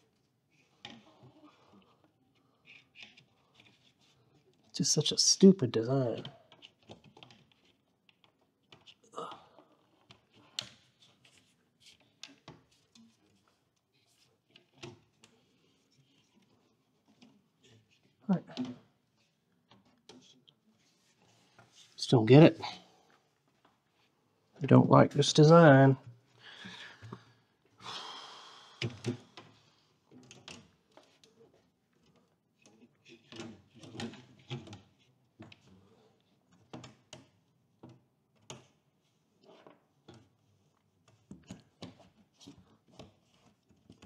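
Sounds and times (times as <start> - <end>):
person sighing: 9.1 - 9.6, 27.8 - 29.0.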